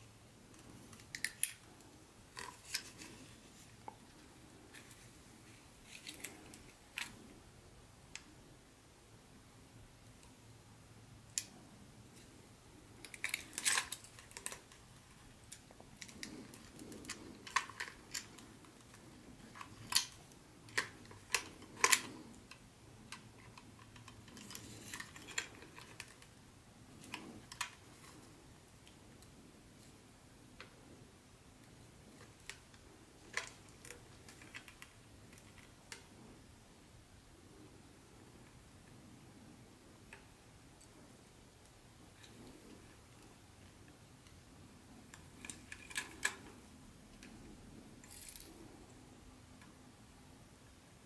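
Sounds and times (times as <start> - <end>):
plastic parts clicking: 15.4 - 26.3.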